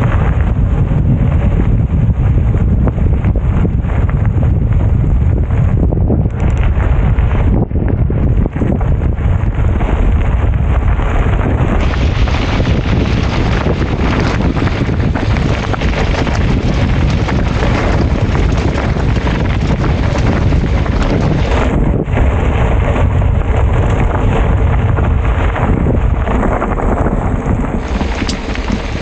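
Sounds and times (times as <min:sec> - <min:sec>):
wind buffeting microphone: 0:00.0 - 0:29.0
tyres crunching over gravel: 0:08.4 - 0:29.0.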